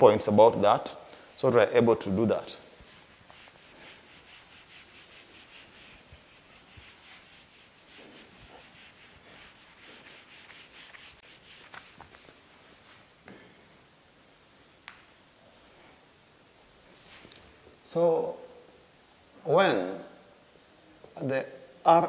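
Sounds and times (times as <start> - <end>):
duster rubbing a whiteboard: 2.8 - 12.4.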